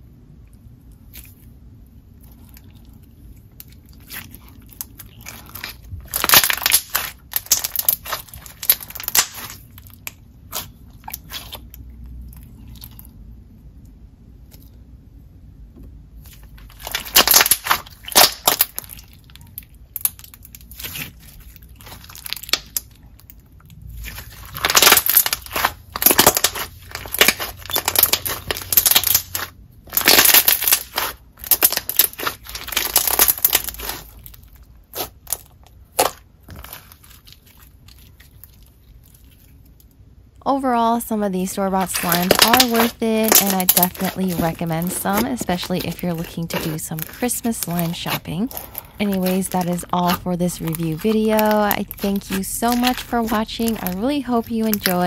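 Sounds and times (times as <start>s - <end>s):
slime squelching wet clicks: 41.8s - 55.0s.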